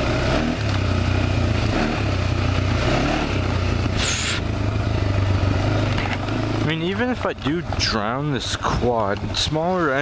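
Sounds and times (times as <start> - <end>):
quad engine running: 0.0 - 10.0
short hiss: 4.0 - 4.4.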